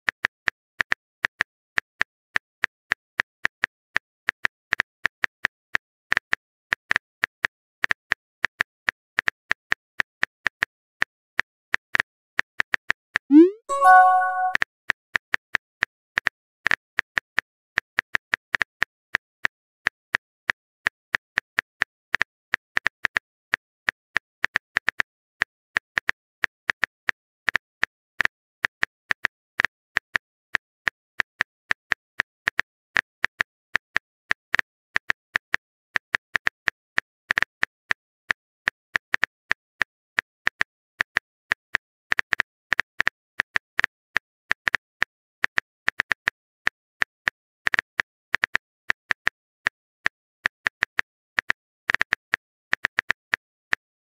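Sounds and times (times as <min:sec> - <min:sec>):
phone keyboard typing clicks: 0:13.3 - 0:14.6.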